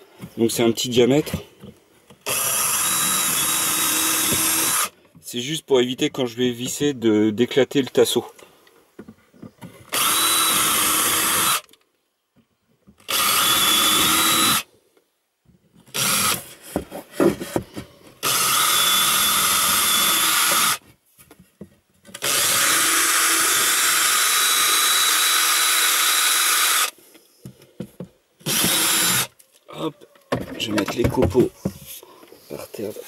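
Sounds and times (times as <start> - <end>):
cordless drill whining: 2.2 - 5.0, 9.8 - 11.8, 13.0 - 14.7, 15.9 - 16.6, 18.2 - 20.8, 22.1 - 27.0, 28.4 - 29.4
knocks and handling clatter: 7.8 - 9.9, 16.6 - 18.2, 27.4 - 28.2, 29.4 - 32.4.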